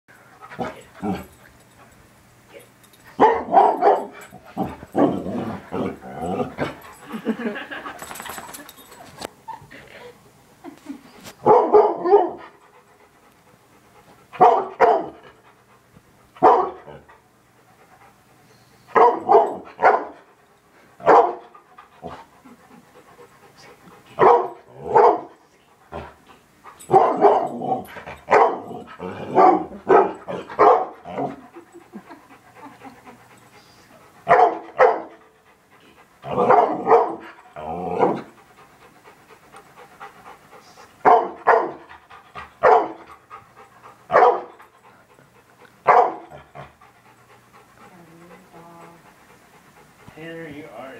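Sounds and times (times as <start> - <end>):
dog barking: 3.2 - 4.1, 11.4 - 12.4, 14.4 - 15.2, 16.4 - 16.8, 19.0 - 20.2, 21.0 - 21.4, 24.2 - 25.3, 26.9 - 27.5, 28.3 - 28.7, 29.3 - 31.0, 34.3 - 35.1, 36.4 - 37.2, 41.0 - 41.8, 42.6 - 43.0, 44.1 - 44.5, 45.9 - 46.2.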